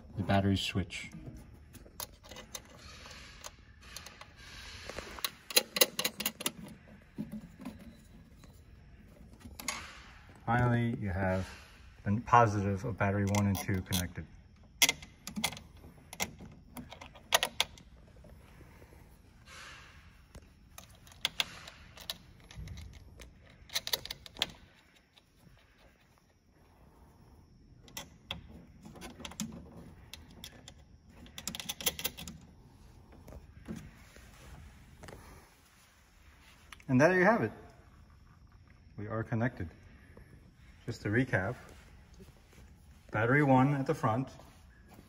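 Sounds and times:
sharp clicks and rattles: 1.1 - 10.5, 12.6 - 18.5, 20.3 - 26.2, 27.8 - 33.9
metal terminals clinking: 1.5 - 11.7, 27.8 - 32.5.

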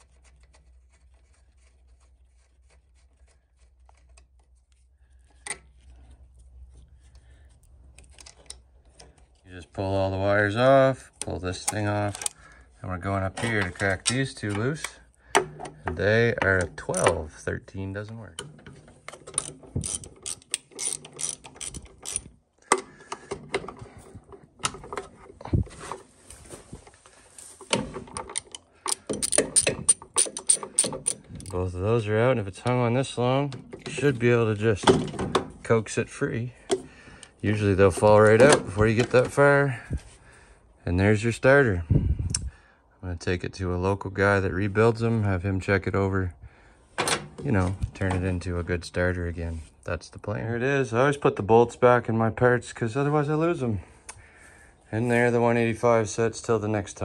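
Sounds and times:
metal scrapes and clicks: 16.4 - 26.0, 27.6 - 31.6
ratchet wrench clicking: 19.3 - 22.3, 28.4 - 31.6.

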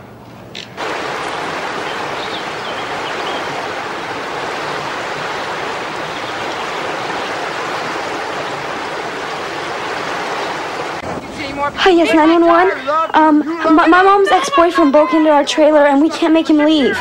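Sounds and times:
water rushing: 0.8 - 12.7.

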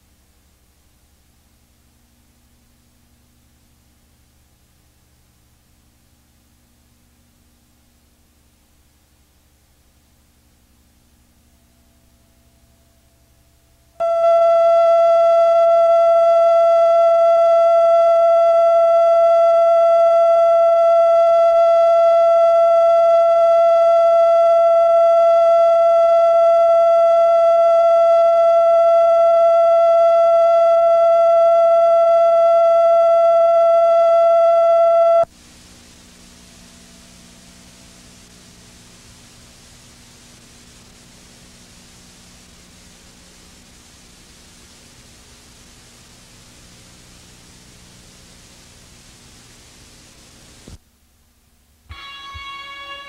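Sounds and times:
faint hiss: 0.0 - 53.0
single-pitch test tone: 14.0 - 35.3, 51.9 - 53.0.

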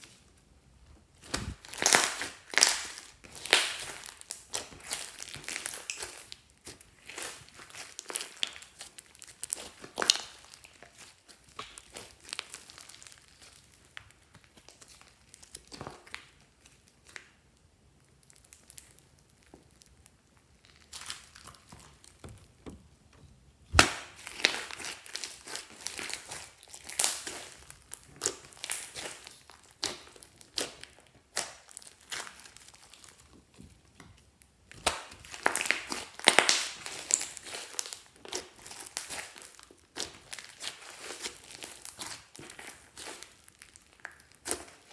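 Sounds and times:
slime crackling and popping: 1.2 - 23.1, 23.7 - 44.9
slime snapping: 23.7 - 27.4.

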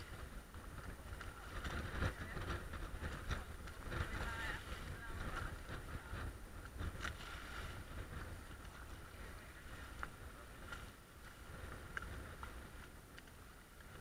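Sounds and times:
water sloshing along hull: 0.0 - 14.0
wind rumble on microphone: 0.0 - 14.0.

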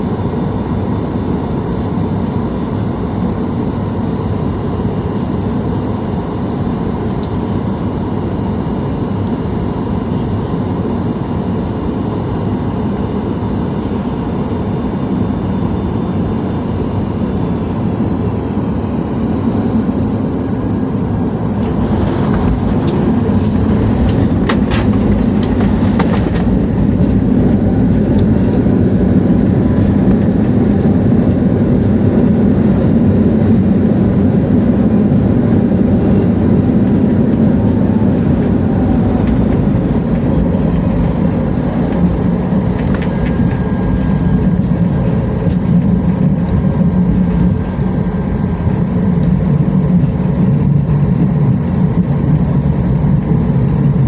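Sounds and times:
faint steady whine: 0.0 - 54.0
jet engine and airflow rush: 0.0 - 54.0
touchdown rumble: 21.5 - 33.3, 35.2 - 54.0.

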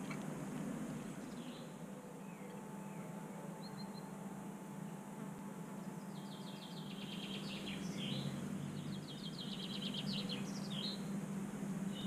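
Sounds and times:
steady low hum: 0.0 - 12.0
songbird trilling: 6.1 - 11.1.

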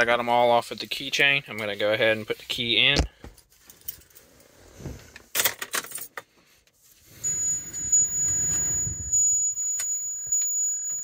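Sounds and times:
low hum: 7.2 - 10.2
high-pitched electronic tone: 7.2 - 11.0.

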